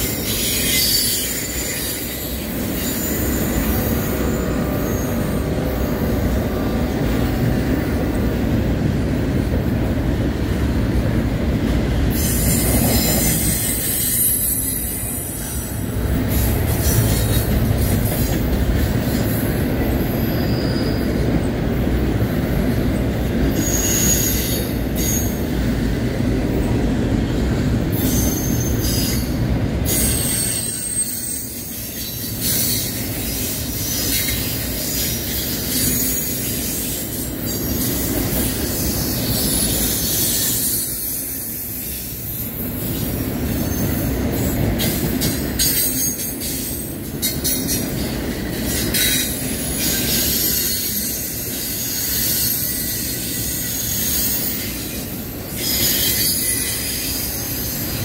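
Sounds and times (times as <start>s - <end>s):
high-pitched flange squeal: 0.0s - 6.6s
train wheels rumbling on rail: 0.0s - 58.0s.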